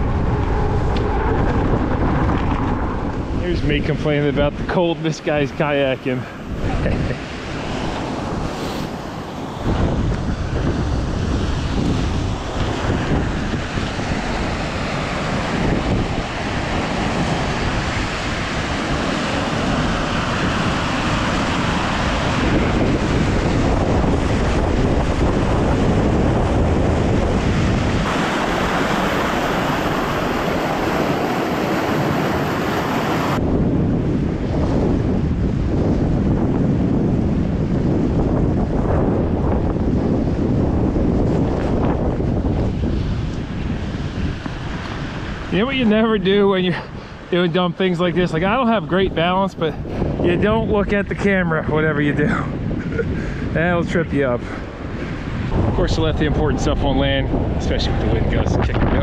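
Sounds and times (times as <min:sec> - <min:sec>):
white water rushing: 0:00.0 - 0:33.4
wind buffeting microphone: 0:00.0 - 0:59.0.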